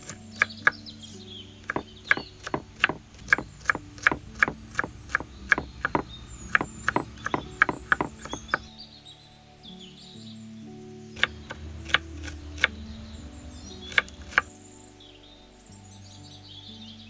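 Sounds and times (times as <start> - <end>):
knife chopping on wooden board: 1.6 - 8.6, 11.2 - 12.7, 13.9 - 14.5.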